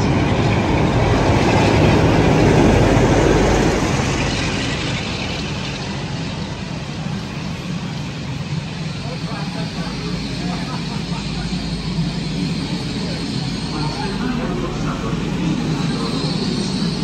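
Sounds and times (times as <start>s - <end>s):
coaches rumbling past: 0.0s - 17.0s
diesel locomotive engine passing: 0.0s - 17.0s.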